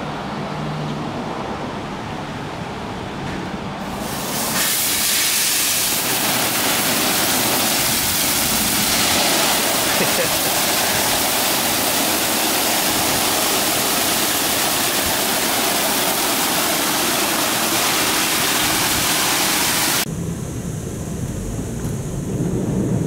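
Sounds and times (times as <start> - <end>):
high-pressure water jets spraying: 3.8 - 20.1.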